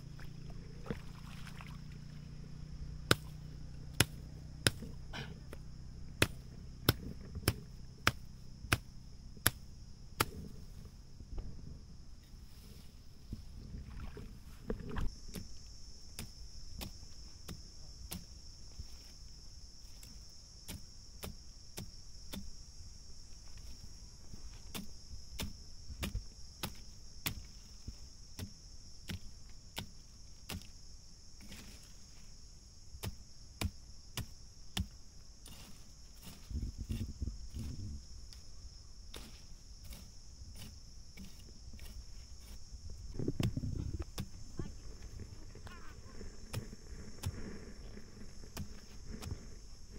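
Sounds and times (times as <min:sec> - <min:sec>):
insects chirring: 0:00.0 - 0:49.9
low thumps: 0:42.8 - 0:49.6.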